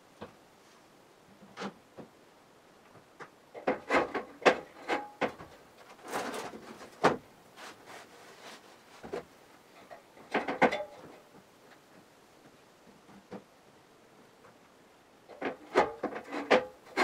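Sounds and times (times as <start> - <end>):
hollow wooden knocks and clatter: 2.9 - 7.3, 8.0 - 13.5, 15.3 - 17.0
wood scraping: 3.6 - 9.3.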